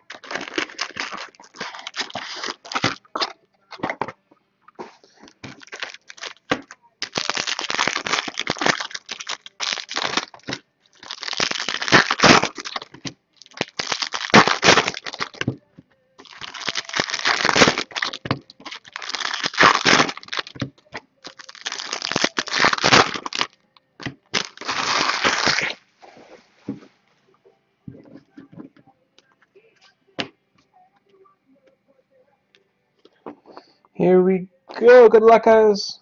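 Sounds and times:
foil wrappers tearing and crinkling: 0:00.0 - 0:03.3, 0:05.1 - 0:15.5, 0:16.2 - 0:25.8.

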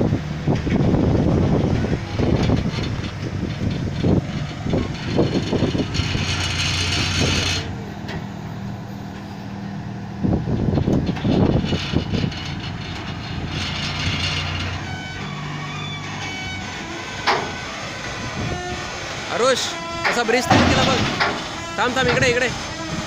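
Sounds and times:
diesel truck engine running: 0:00.0 - 0:23.0
low rumbling bumps: 0:00.0 - 0:23.0.

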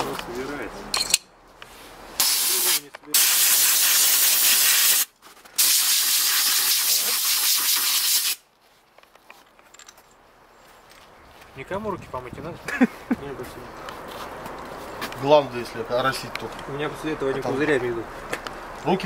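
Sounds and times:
aerosol spray can hissing: 0:02.2 - 0:08.4.

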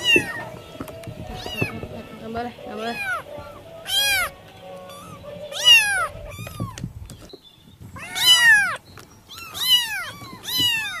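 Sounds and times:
cat meowing: 0:00.0 - 0:00.6, 0:01.3 - 0:01.9, 0:02.7 - 0:06.9, 0:08.0 - 0:11.0.

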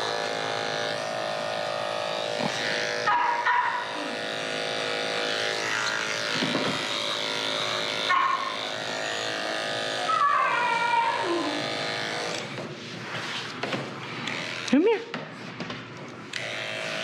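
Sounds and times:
electric clippers running: 0:00.0 - 0:17.0.

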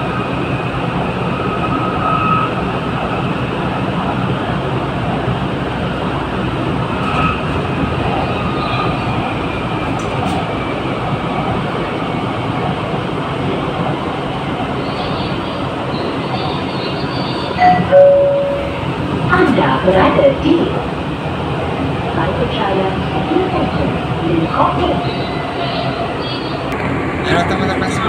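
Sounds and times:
train wheels rumbling on rail: 0:00.0 - 0:28.0.

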